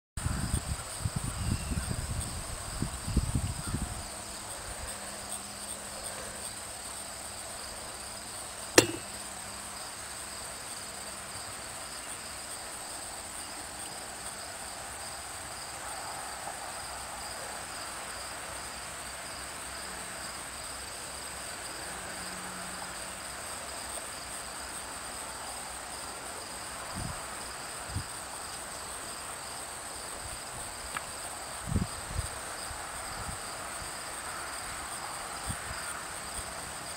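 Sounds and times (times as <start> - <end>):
sharp click: 8.8 - 9.1
soft knocks: 8.8 - 9.1.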